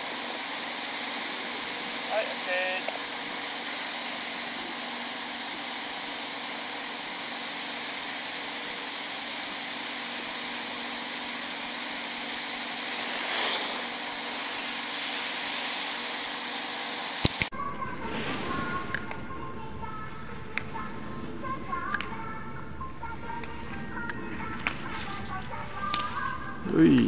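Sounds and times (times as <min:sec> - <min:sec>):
ski edges scraping snow: 0:11.5 - 0:17.1.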